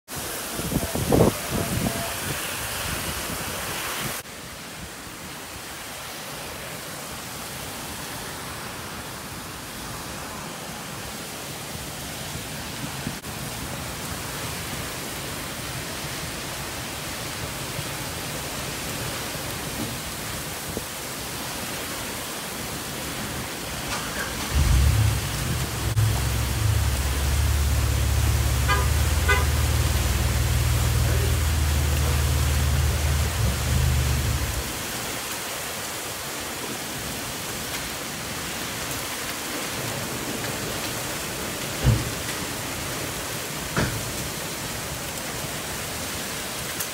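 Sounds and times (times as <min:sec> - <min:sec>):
heavy rain on pavement: 0:00.1 - 0:46.9
loud low rumble: 0:24.6 - 0:34.6.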